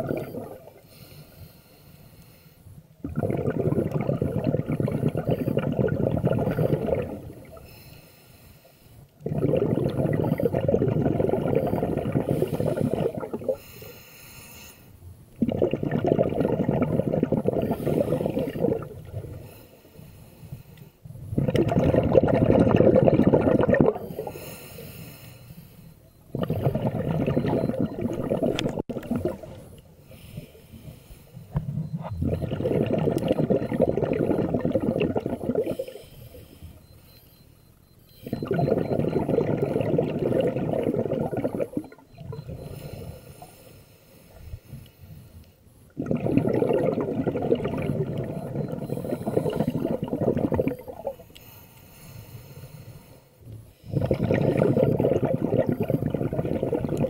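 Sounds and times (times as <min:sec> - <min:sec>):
exhaled bubbles underwater: 0:00.0 - 0:00.9, 0:03.0 - 0:07.8, 0:09.2 - 0:13.7, 0:15.3 - 0:19.6, 0:21.1 - 0:24.6, 0:26.2 - 0:29.8, 0:31.5 - 0:36.0, 0:38.1 - 0:43.2, 0:45.9 - 0:51.4, 0:53.8 - 0:57.0
regulator inhalations: 0:00.0 - 0:02.9, 0:04.8 - 0:15.0, 0:16.9 - 0:21.1, 0:23.9 - 0:56.6.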